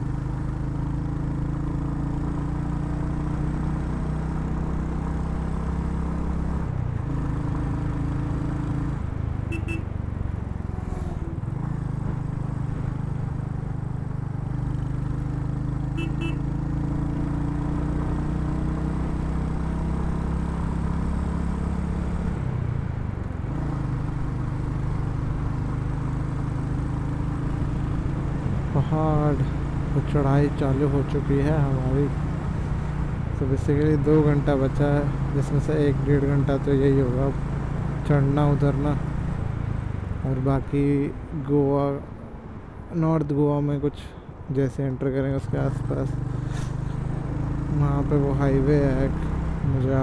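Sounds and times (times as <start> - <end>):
motorcycle engine running: 0.0 - 22.2.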